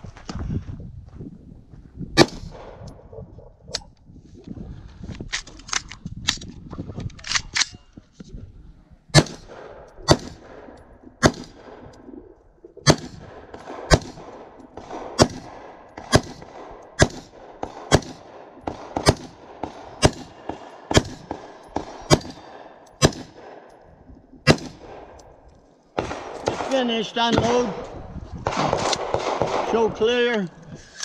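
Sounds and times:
pistol shots with echo: 9.1s - 11.9s, 12.8s - 23.8s, 24.4s - 25.3s, 26.0s - 30.3s.

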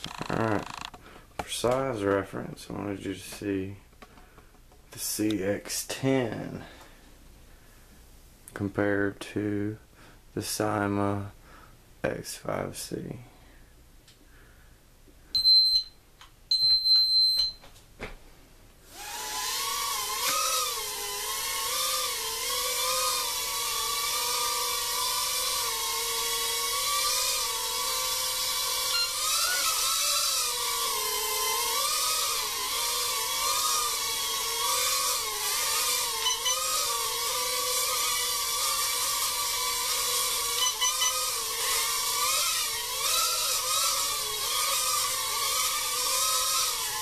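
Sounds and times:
quadcopter propellers whining: 18.9s - 47.0s
short high electronic beeps: 36.2s - 36.7s, 40.6s - 41.3s.

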